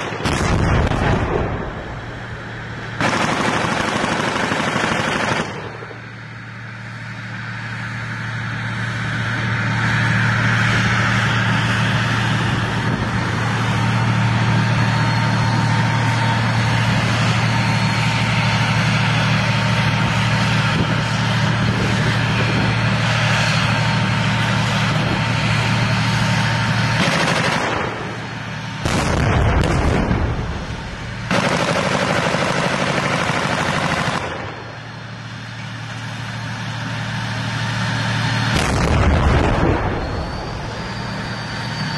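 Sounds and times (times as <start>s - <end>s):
tank engine running: 0.0s - 41.9s
deep boom: 0.2s - 2.0s, 28.9s - 31.1s, 38.6s - 41.0s.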